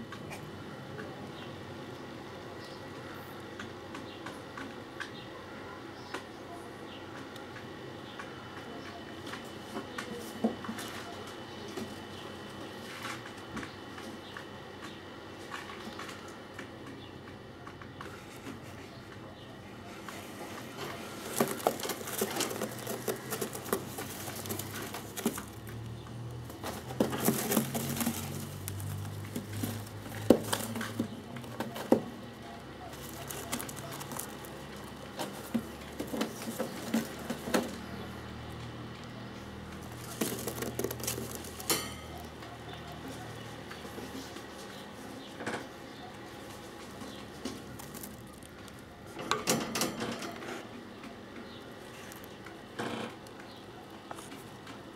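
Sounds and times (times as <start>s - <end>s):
scuffling and fluttering: 18.0s - 49.2s
pigeons cooing: 18.9s - 49.2s
pigeons tapping on cage: 20.9s - 38.0s.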